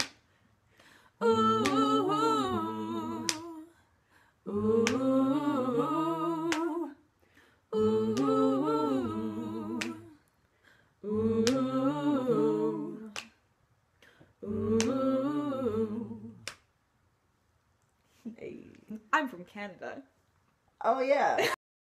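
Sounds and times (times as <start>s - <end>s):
finger snaps: 0.0s - 1.0s, 3.2s - 3.5s, 13.1s - 13.4s, 14.0s - 15.0s, 16.4s - 16.7s
a cappella group singing: 0.8s - 16.7s.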